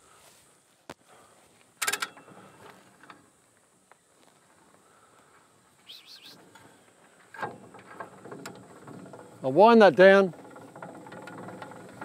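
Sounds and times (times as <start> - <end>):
metallic winch rattle: 1.8 - 3.3, 6.4 - 12.0
short high chirp: 5.8 - 6.4.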